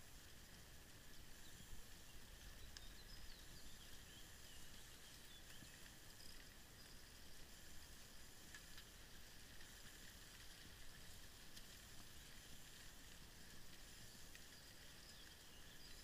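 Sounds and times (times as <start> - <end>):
faint low rumble and hiss: 0.0 - 16.0
faint bird chirps: 1.3 - 7.3, 14.0 - 16.0.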